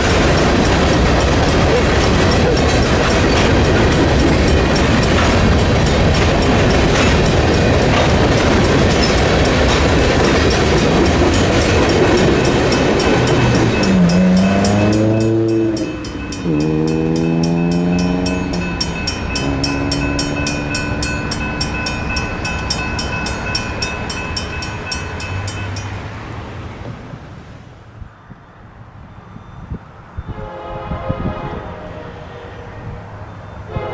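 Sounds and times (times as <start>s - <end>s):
freight train wheels clattering: 0.0s - 26.1s
crossing bell ringing: 0.0s - 26.3s, 32.7s - 33.9s
locomotive air horn: 19.3s - 20.8s, 30.3s - 33.1s, 33.7s - 33.9s.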